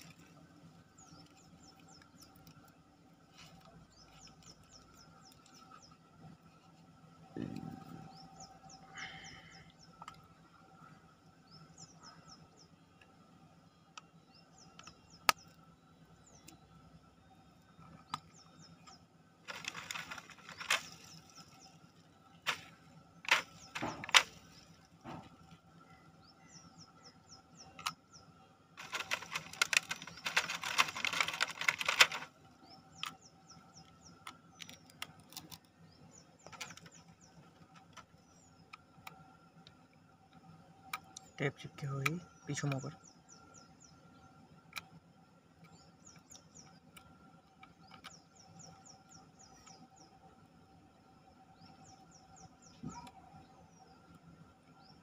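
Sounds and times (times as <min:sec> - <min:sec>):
birds chirping: 0:00.0 - 0:55.0
plastic film crinkling: 0:19.5 - 0:21.4, 0:23.3 - 0:24.5, 0:28.8 - 0:32.3.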